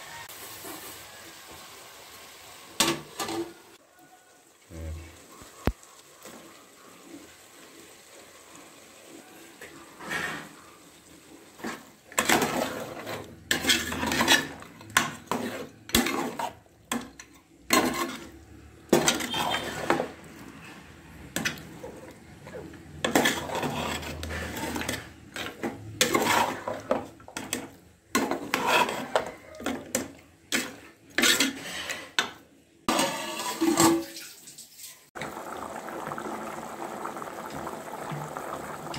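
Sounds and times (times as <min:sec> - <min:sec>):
metal ladle scraping a pot: 0:09.9 - 0:10.7, 0:11.6 - 0:34.0.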